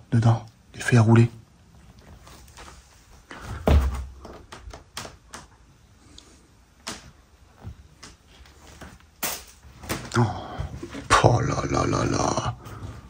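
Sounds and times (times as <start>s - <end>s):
heavy thump: 3.5s - 4.2s.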